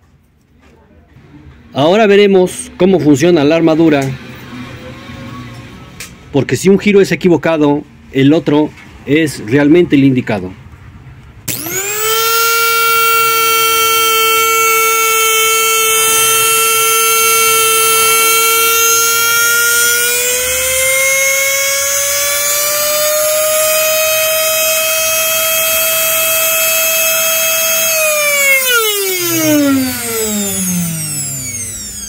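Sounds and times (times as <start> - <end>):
blender motor whining: 11.5 - 32.0.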